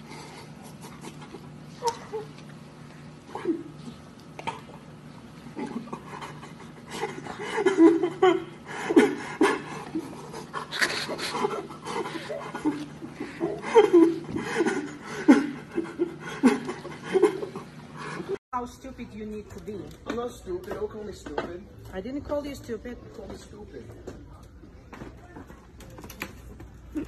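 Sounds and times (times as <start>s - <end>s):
panting breaths: 0.0s - 2.2s, 5.4s - 18.4s
person laughing breathlessly: 5.6s - 18.4s.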